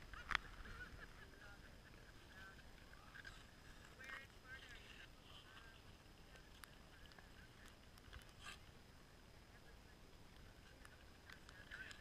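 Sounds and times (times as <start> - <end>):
faint scrape: 8.1 - 8.7.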